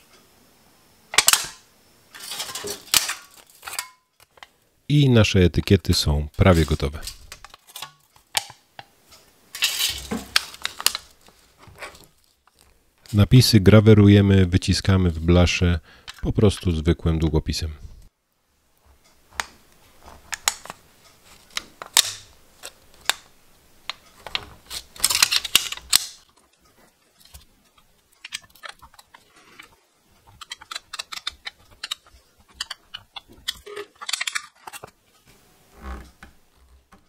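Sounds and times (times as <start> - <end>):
thin metal rustling: 2.1 - 4.5, 6.4 - 13.2, 23.9 - 36.9.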